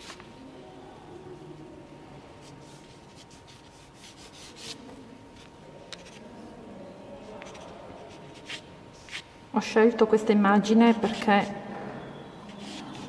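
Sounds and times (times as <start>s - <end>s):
pencil sketching on paper: 2.4s - 4.8s, 12.5s - 13.0s.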